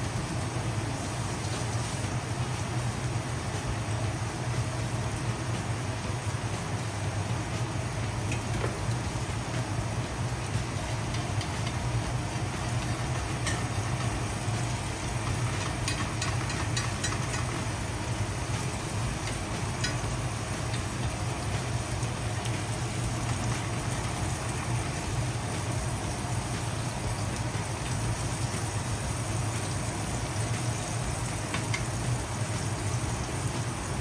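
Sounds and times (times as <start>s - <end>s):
meat sizzling in a pan: 0.1s - 34.0s
oil popping and crackling: 8.0s - 34.0s.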